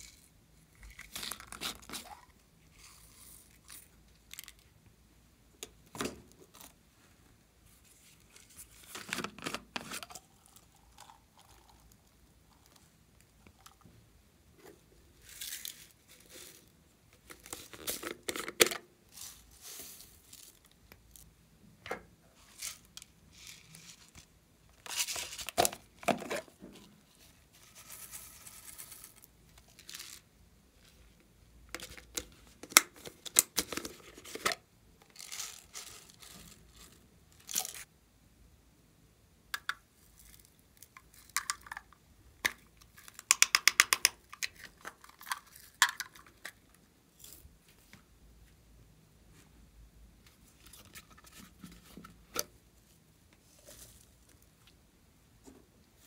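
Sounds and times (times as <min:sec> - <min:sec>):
plastic containers clicking and rustling: 0:17.2 - 0:18.9, 0:24.8 - 0:26.9, 0:41.1 - 0:46.6.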